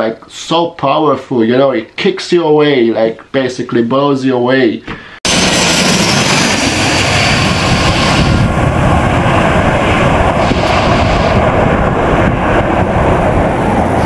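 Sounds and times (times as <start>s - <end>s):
turboprop engines roaring: 5.3s - 14.0s.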